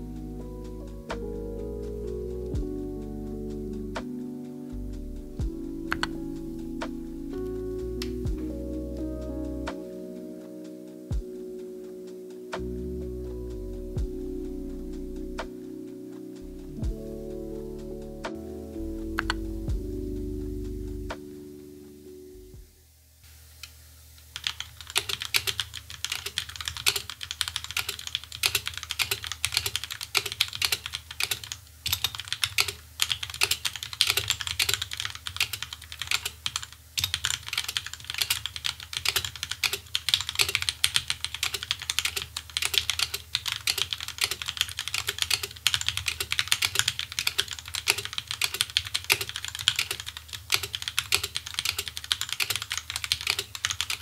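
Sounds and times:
mechanical keyboard typing: 24.4 - 54.0.

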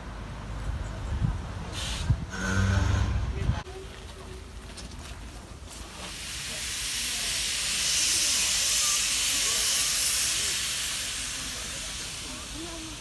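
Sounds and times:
locomotive steam hissing: 1.7 - 3.2, 5.7 - 13.0.

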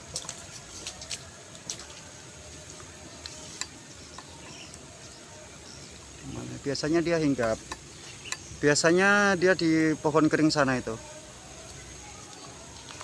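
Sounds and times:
high insect buzz: 0.0 - 13.0
faint bird chirp: 2.9 - 9.0.

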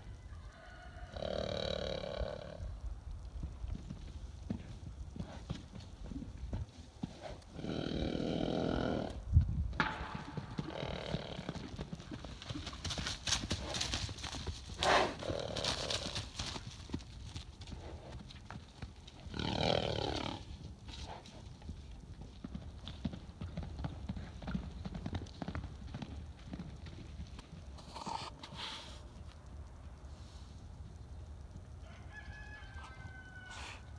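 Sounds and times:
horse hoofbeats: 3.4 - 28.6
horse snort: 7.1 - 9.2, 10.7 - 11.5, 14.8 - 16.0, 19.3 - 20.5, 27.8 - 29.0
horse whinnies: 33.3 - 33.8.

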